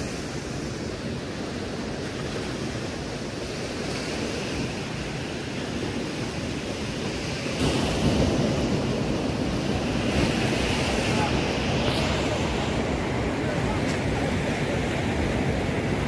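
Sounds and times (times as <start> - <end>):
sea surf washing: 0.0 - 16.0
wind buffeting microphone: 0.0 - 16.0.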